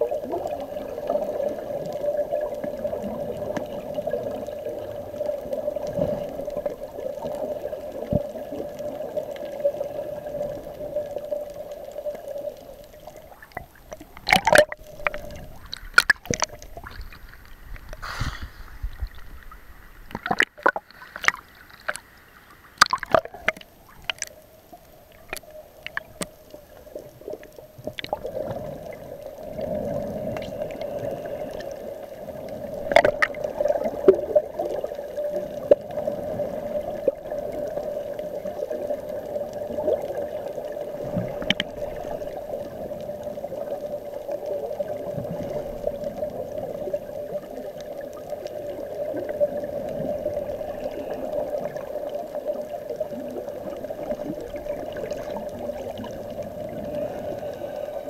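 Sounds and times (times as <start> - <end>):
underwater gurgling and sloshing: 0.0 - 58.0.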